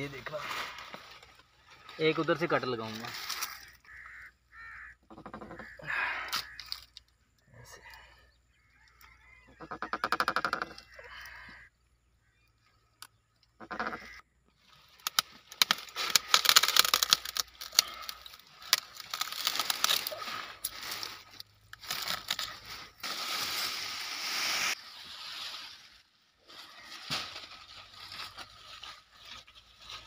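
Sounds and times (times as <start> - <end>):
leaves rustling: 0.0 - 4.8, 14.6 - 30.0
pruning shears cracking wood: 15.0 - 18.0.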